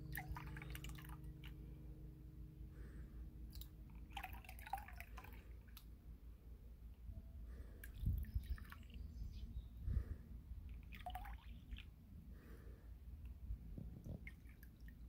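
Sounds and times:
water splashing and dripping: 0:03.5 - 0:05.9, 0:10.7 - 0:11.9, 0:14.0 - 0:15.0.

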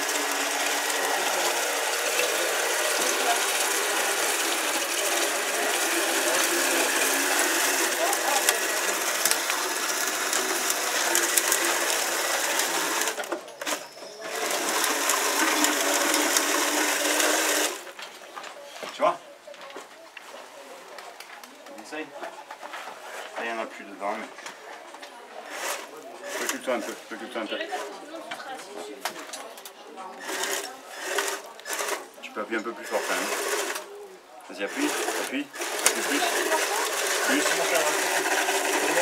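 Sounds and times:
machine clattering: 0:34.7 - 0:39.0.

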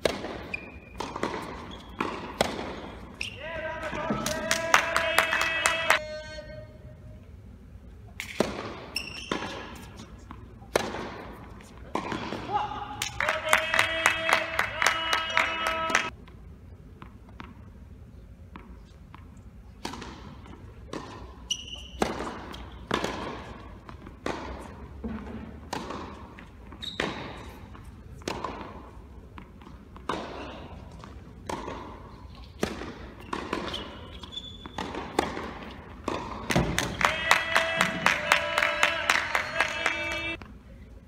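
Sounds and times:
tennis balls struck and bouncing: 0:00.0 - 0:06.0, 0:08.1 - 0:16.2, 0:18.4 - 0:40.5
shoe squeaks: 0:00.4 - 0:02.1, 0:02.8 - 0:03.5, 0:08.8 - 0:10.3, 0:21.3 - 0:22.9, 0:26.7 - 0:27.7, 0:32.1 - 0:35.0.

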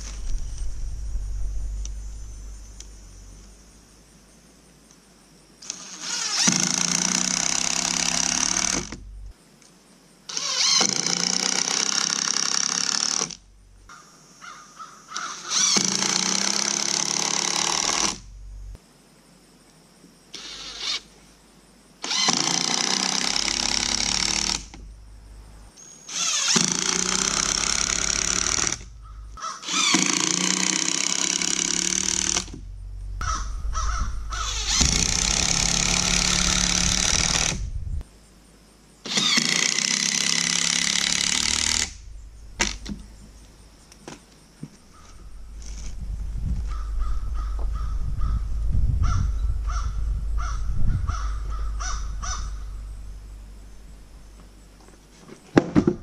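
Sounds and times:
drill driving screws into wood: 0:05.6 - 0:09.0, 0:10.3 - 0:13.4, 0:15.2 - 0:18.3, 0:20.3 - 0:21.1, 0:22.0 - 0:24.8, 0:26.1 - 0:28.9, 0:29.6 - 0:32.6, 0:34.4 - 0:37.7, 0:39.1 - 0:42.0, 0:42.6 - 0:43.0.

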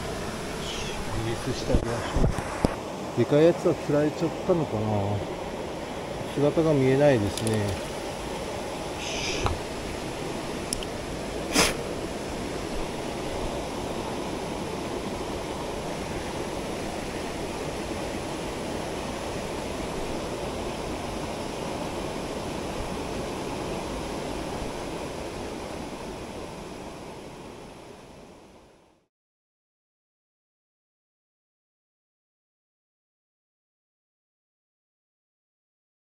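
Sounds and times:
mountain stream rushing: 0:00.0 - 0:28.5.

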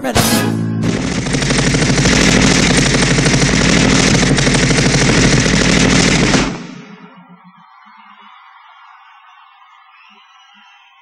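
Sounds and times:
machine-gun fire: 0:00.2 - 0:07.2.

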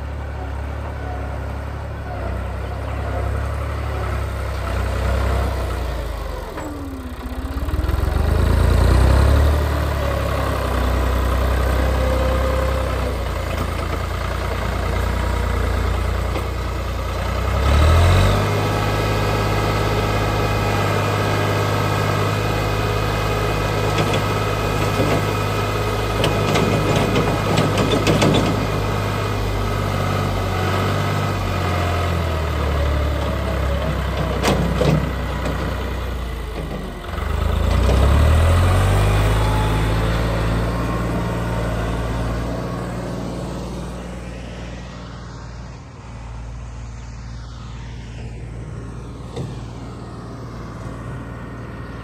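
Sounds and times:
tractor diesel engine running: 0:00.0 - 0:46.6, 0:48.2 - 0:52.0
engine knocks: 0:26.2 - 0:29.0.

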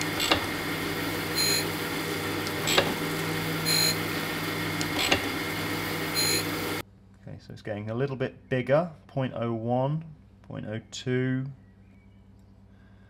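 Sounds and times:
grinding wheel hiss: 0:00.0 - 0:06.8
surface grinder hum: 0:00.0 - 0:06.8.

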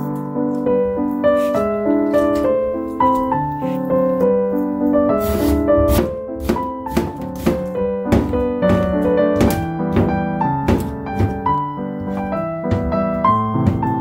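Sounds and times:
piano waltz music: 0:00.0 - 0:14.0
knife chopping on plastic board: 0:05.9 - 0:11.6.

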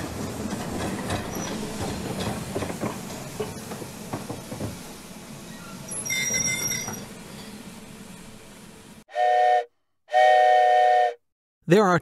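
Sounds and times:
steam whistle toot: 0:09.1 - 0:11.2.

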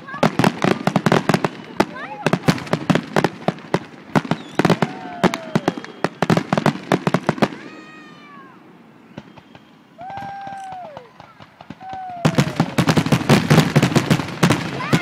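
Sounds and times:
fireworks bangs and cracks: 0:00.0 - 0:15.0
spectators whooping: 0:04.3 - 0:06.4, 0:07.4 - 0:13.0.

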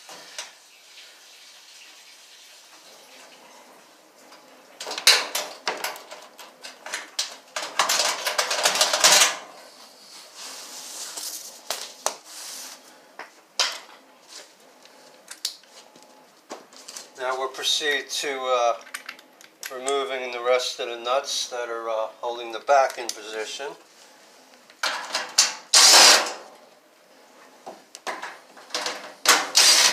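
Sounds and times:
metal clicks and rattling: 0:18.8 - 0:20.0.

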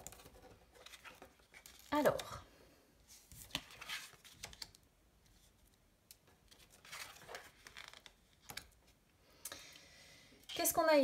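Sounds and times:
cards sliding and tapping: 0:03.1 - 0:04.8.

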